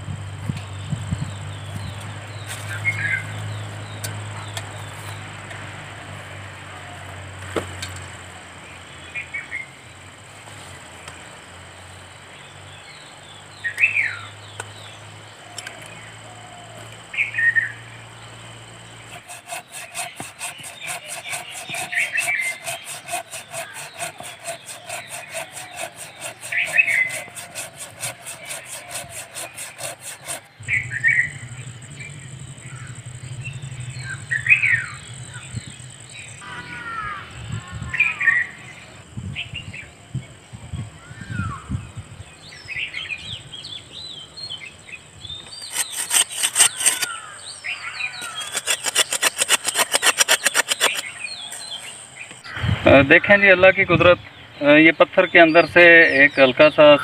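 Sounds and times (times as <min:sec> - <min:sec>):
birds whistling: 0:13.5 - 0:18.0, 0:18.9 - 0:39.9, 0:42.4 - 0:53.3
fast rasping pulse: 0:19.1 - 0:34.2, 0:45.6 - 0:47.2, 0:48.2 - 0:52.1
steady high hum: 0:30.5 - 0:36.4.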